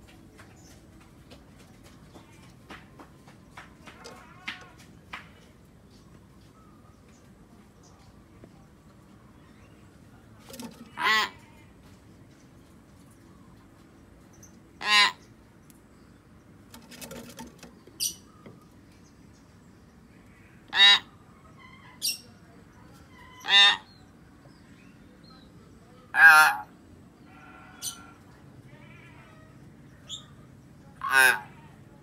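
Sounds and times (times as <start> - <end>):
myna calling: 10.5 - 11.6, 14.8 - 15.2, 31.0 - 31.8.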